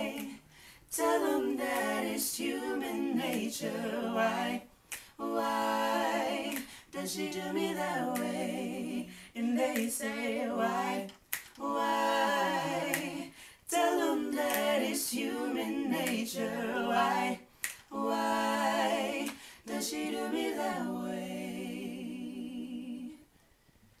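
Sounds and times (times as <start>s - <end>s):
group singing vocal harmonies: 0.0s - 23.4s
finger snaps: 0.1s - 0.4s, 4.9s - 5.2s, 6.5s - 6.8s, 8.1s - 8.4s, 9.7s - 9.9s, 11.1s - 11.6s, 12.9s - 13.4s, 14.4s - 14.8s, 17.6s - 17.9s, 19.2s - 19.5s.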